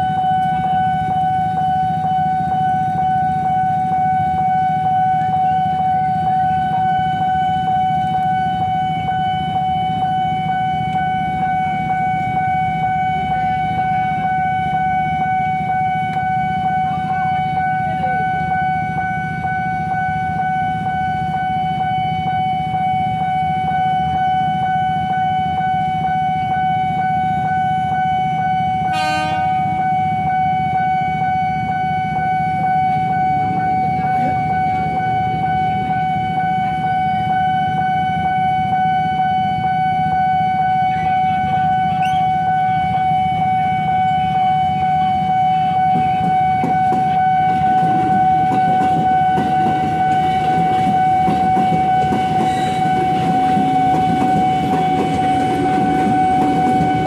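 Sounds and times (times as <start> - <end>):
level-crossing warning tone: 0.0 - 57.0
short horn toot: 28.9 - 29.6.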